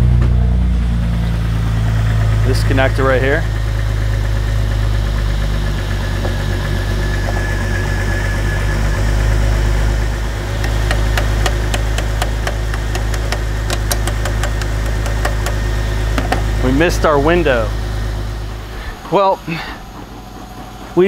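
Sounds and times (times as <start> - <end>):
car engine idling: 0.0 - 21.0
sharp irregular clicks: 10.6 - 15.6.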